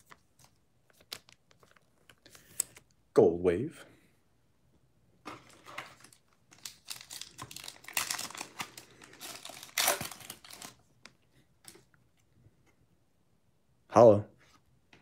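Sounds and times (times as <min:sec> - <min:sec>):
foil wrapper tearing and crackling: 0:06.5 - 0:10.8.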